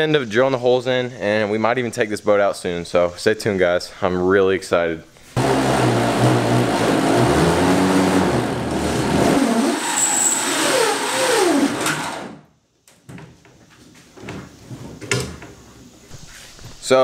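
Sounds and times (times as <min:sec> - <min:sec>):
power drill boring aluminum: 0:05.4 - 0:12.4.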